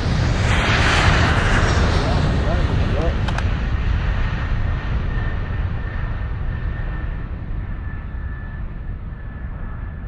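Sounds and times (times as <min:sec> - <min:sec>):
low rumbling noise: 0:00.0 - 0:10.0
faint high whine: 0:04.7 - 0:10.0.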